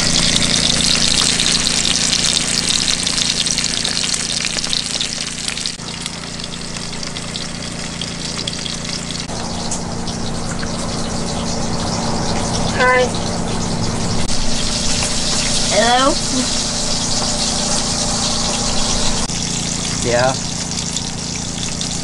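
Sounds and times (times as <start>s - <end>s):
bacon sizzling in a skillet: 0.0s - 22.0s
steady low hum: 5.7s - 22.0s.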